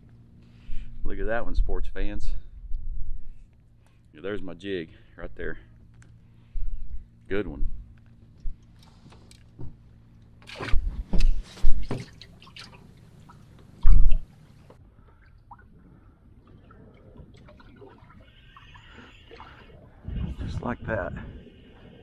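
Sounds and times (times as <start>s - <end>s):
faint lapping water: 8.0s - 22.0s
water splashing against boat: 8.6s - 22.0s.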